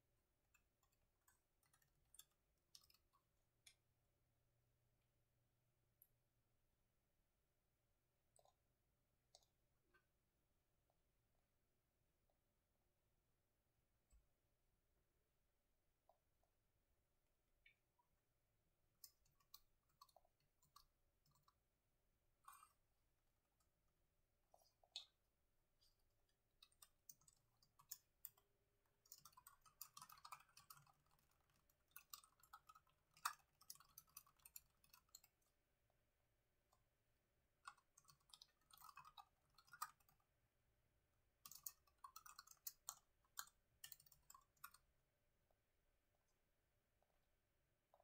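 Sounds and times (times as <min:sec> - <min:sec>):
typing on computer keyboard: 0:26.6 - 0:35.5, 0:41.4 - 0:44.8.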